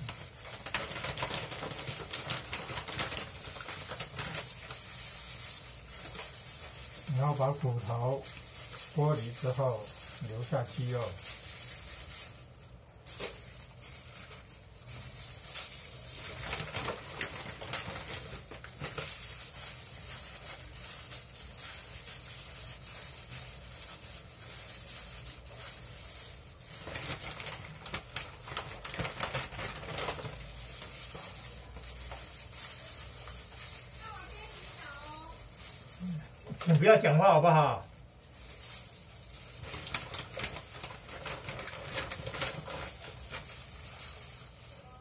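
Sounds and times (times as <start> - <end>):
tearing cooked chicken: 0.0 - 37.1
plastic rustling: 0.0 - 45.0.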